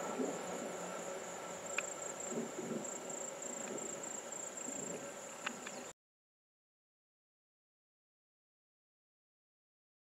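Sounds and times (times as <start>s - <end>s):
faint low rumble: 0.0s - 5.9s
insects trilling: 0.0s - 5.9s
faint clicks: 1.7s - 2.0s, 5.4s - 5.8s.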